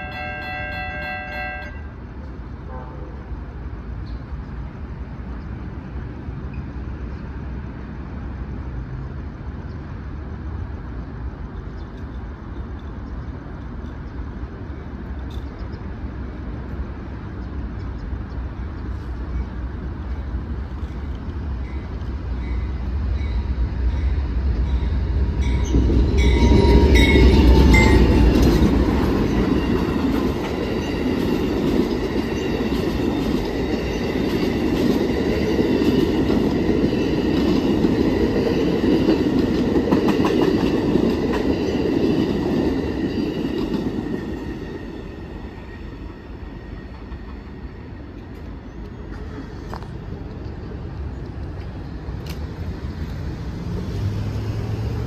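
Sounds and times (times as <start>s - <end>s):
passenger train rumbling past: 0.0s - 55.0s
wheels squealing: 22.6s - 34.8s.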